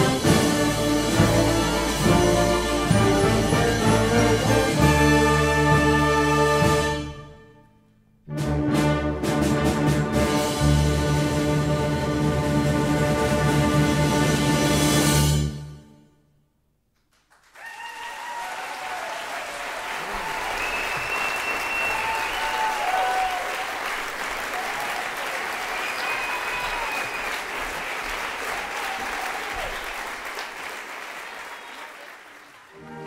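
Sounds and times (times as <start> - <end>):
audience applause: 17.1 - 33.0
audience cheering: 17.4 - 33.0.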